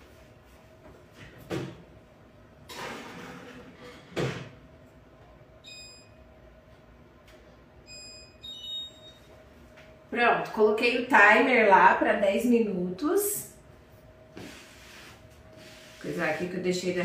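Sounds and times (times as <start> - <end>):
short electronic beeps: 7.9 - 9.3.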